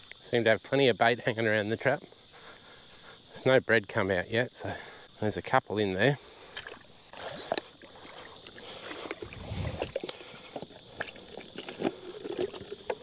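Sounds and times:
water dripping and trickling: 6.5s - 13.0s.

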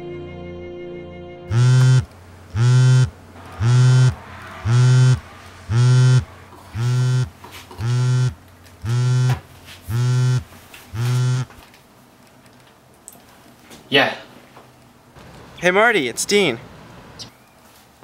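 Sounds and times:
phone vibrating buzz: 1.5s - 11.6s.

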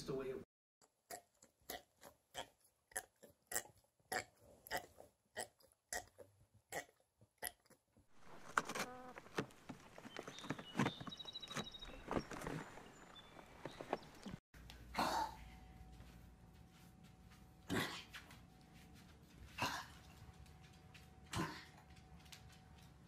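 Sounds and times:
rustling: 8.1s - 14.4s.

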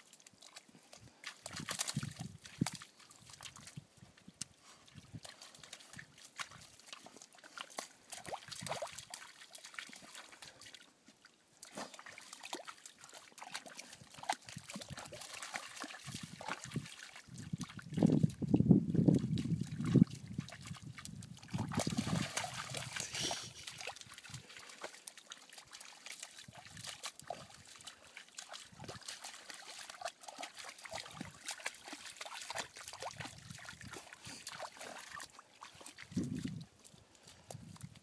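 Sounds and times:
small splashes in puddle: 0.0s - 38.0s
dogs sniffing in water: 11.6s - 17.1s, 21.4s - 36.2s.

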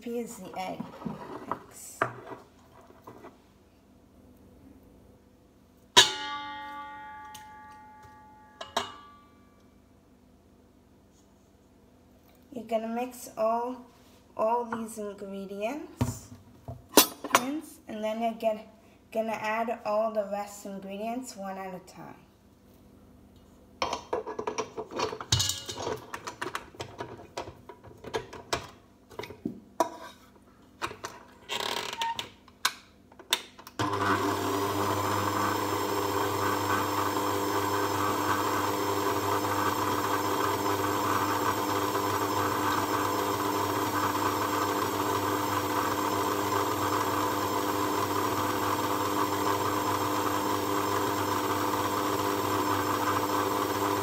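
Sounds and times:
stand mixer motor humming: 33.8s - 54.0s.

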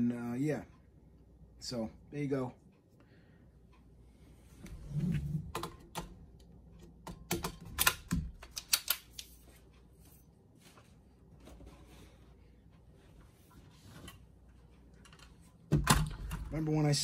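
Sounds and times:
rifle parts clicking and clacking: 6.8s - 9.6s.

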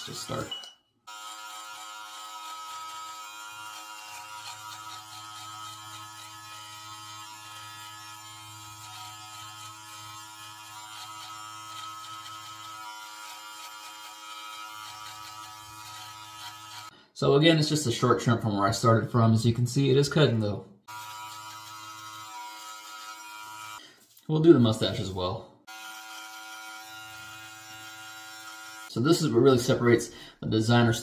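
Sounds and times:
beard trimmer buzzing: 1.1s - 16.9s, 20.9s - 23.8s, 25.7s - 29.0s.

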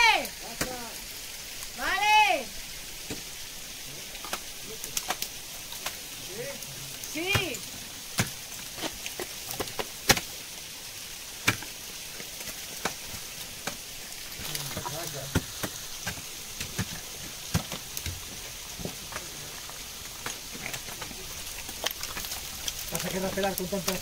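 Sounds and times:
steady hiss: 0.1s - 24.0s
ice ticking and knocking: 0.4s - 0.9s, 3.0s - 3.4s, 4.1s - 6.1s, 7.0s - 10.5s, 11.3s - 24.0s.

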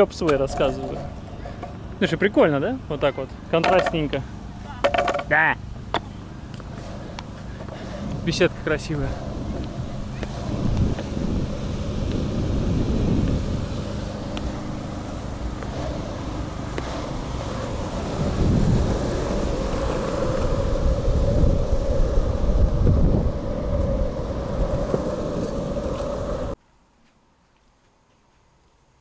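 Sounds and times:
wheels rolling over asphalt: 0.0s - 26.6s
wind on microphone: 6.7s - 26.6s.

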